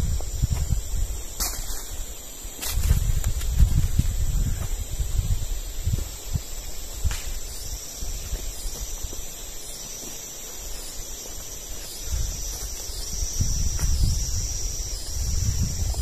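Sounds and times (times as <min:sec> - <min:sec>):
insects droning: 0:00.0 - 0:16.0
footsteps on dry ground: 0:01.4 - 0:05.2.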